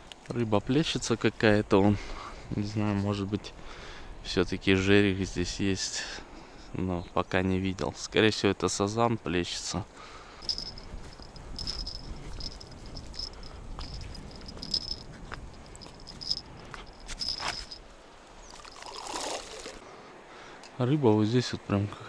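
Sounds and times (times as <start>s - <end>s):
insect chirping: 10.0s - 19.6s
wind rumble: 10.4s - 18.0s.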